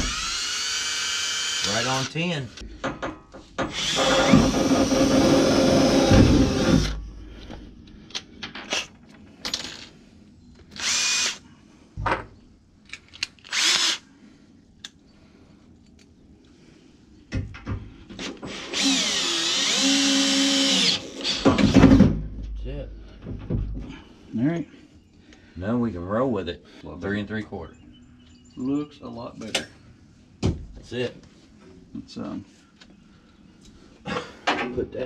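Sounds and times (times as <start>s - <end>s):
cordless drill driving screws: 0.0s - 2.1s, 3.7s - 7.0s, 10.8s - 11.4s, 13.5s - 14.0s, 18.5s - 21.7s.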